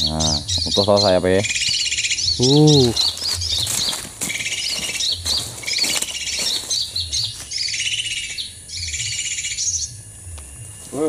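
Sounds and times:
songbirds twittering: 0.0 - 11.0
rustling and scraping: 2.9 - 7.5.

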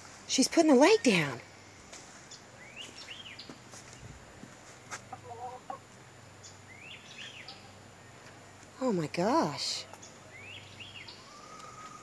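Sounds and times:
hen clucking softly: 5.0 - 5.9.

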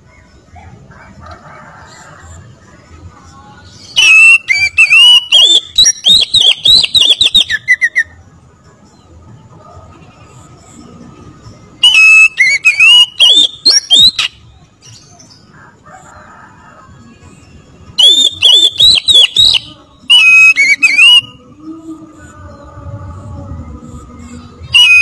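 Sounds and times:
bird singing whistled notes: 3.6 - 8.2, 11.8 - 15.4, 17.4 - 21.8, 24.3 - 25.0.

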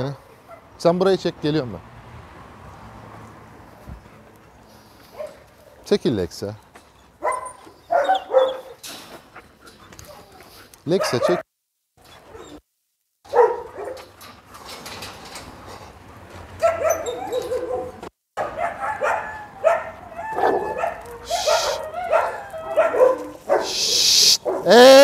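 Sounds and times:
dogs barking: 5.1 - 5.8, 7.1 - 8.8, 10.0 - 11.5, 13.3 - 14.2, 16.6 - 24.8
dogs whining: 7.0 - 8.8, 12.0 - 12.6, 16.6 - 18.0, 18.6 - 24.4.

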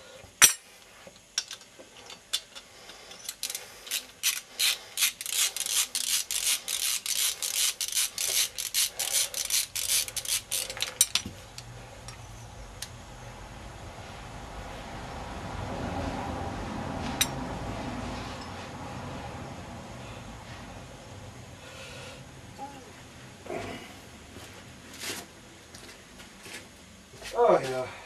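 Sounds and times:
ratchet wrench clicking: 3.2 - 12.2.

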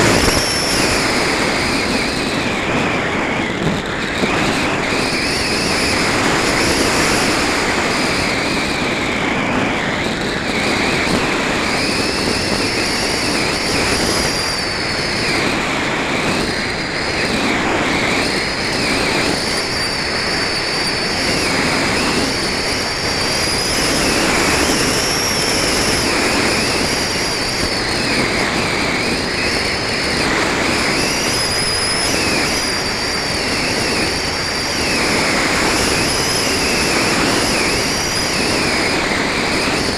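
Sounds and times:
high thin whistle: 0.0 - 2.5, 11.6 - 15.5, 18.2 - 39.9
airflow rushing over camera: 0.0 - 39.9.

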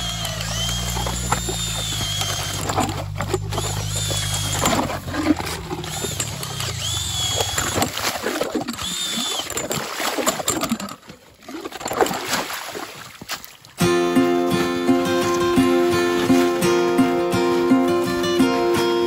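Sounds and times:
drill motor hum: 0.0 - 9.8
auger blades grinding ice: 0.0 - 12.5, 13.3 - 18.4.

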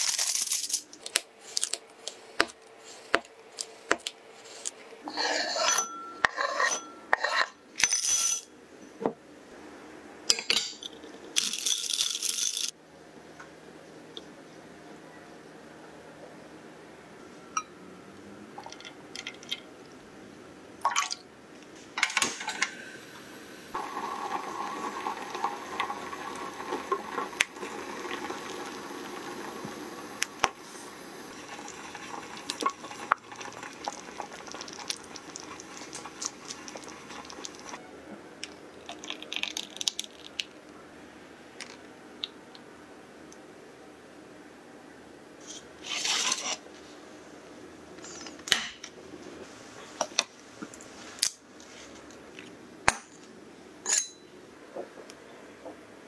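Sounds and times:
spatula scraping glass bowl: 5.1 - 8.4
liquid stirred in saucepan: 23.8 - 37.8.

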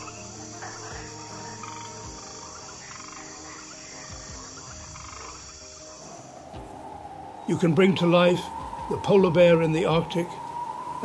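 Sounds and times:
frog calls and chirps: 0.0 - 7.7
high insect drone: 0.0 - 11.0.

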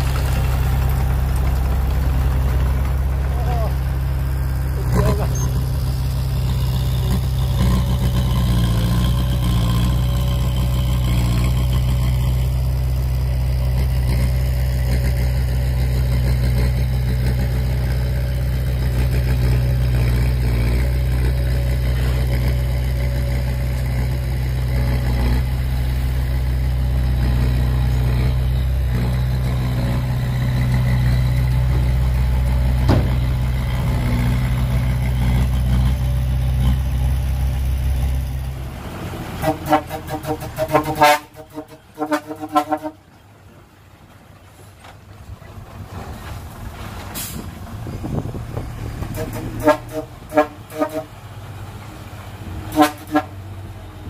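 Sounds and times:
heavy diesel engine running: 0.0 - 54.0
sharp knock: 32.9 - 33.3.

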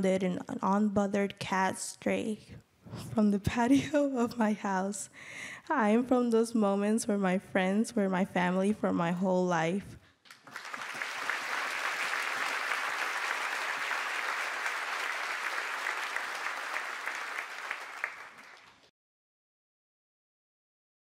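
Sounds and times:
audience applauding: 10.3 - 18.9.

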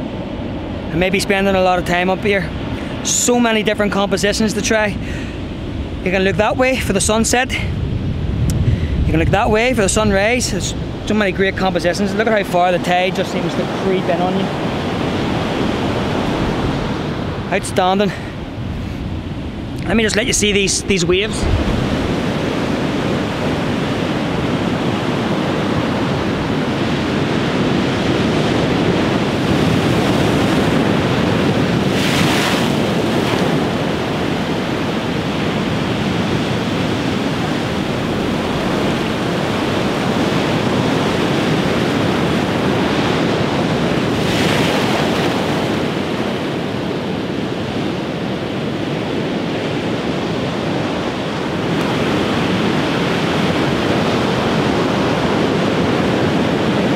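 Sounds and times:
ocean surf breaking on beach: 0.0 - 56.9
wind on microphone: 0.0 - 56.9.

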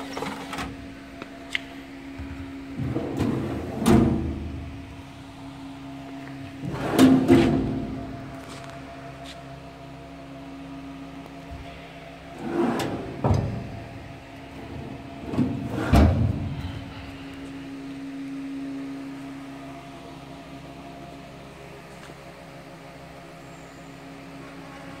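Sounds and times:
steady low hum: 0.0 - 25.0
steel drawer sliding shut: 6.6 - 8.0, 12.4 - 13.8, 15.2 - 16.5
drawer closing with a bang: 15.3 - 16.4.

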